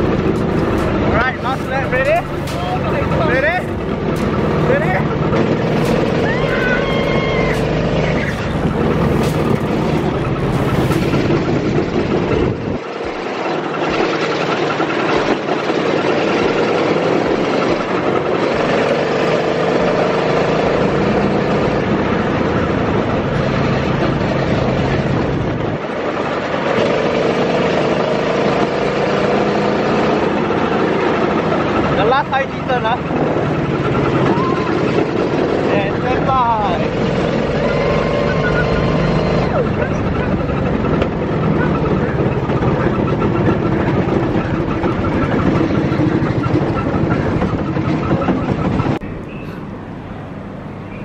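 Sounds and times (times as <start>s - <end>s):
vehicle engine running: 0.0s - 51.0s
wind on microphone: 2.9s - 14.2s.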